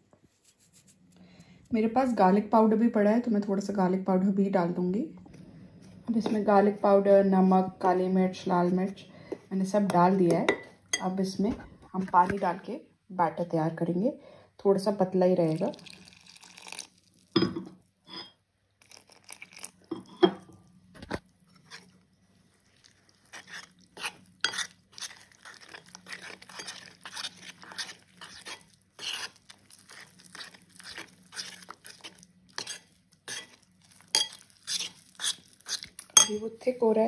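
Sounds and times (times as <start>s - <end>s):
spoon stirring thick batter: 21.1s - 36.5s.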